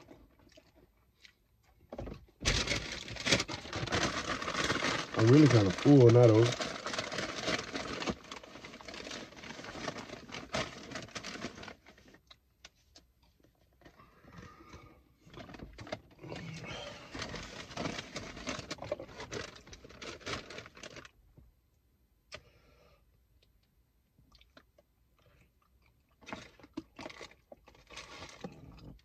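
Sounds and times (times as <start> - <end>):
paper wrappers rustling: 2.4 - 12.2, 15.3 - 21.1, 26.2 - 28.6.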